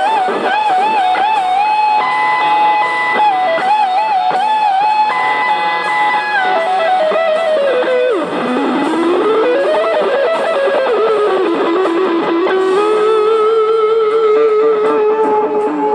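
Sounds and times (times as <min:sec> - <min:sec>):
electric guitar lead melody: 0:00.0 - 0:15.9.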